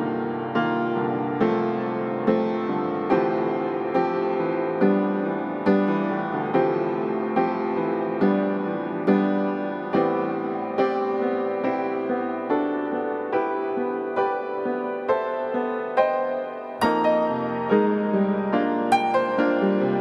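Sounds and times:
calm piano piece: 0:00.0 - 0:20.0.

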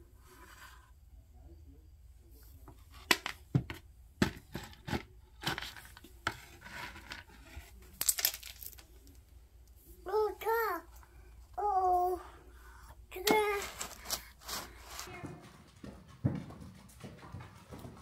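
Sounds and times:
plastic scoop scraping in bucket: 0:04.5 - 0:07.8, 0:13.3 - 0:15.1
grain pellets rattling: 0:08.0 - 0:09.0, 0:13.6 - 0:15.1.

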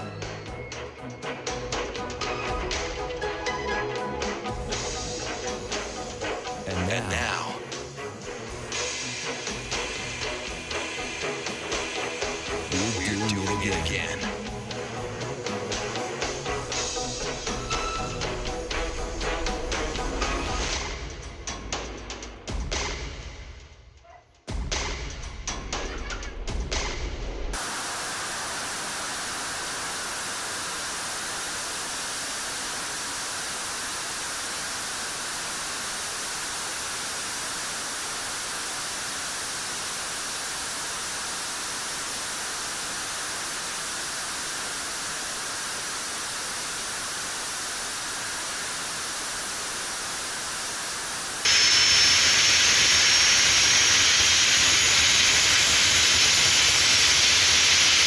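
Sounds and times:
thin high whine: 0:11.9 - 0:14.9
jet engine rushing: 0:27.6 - 0:58.0.

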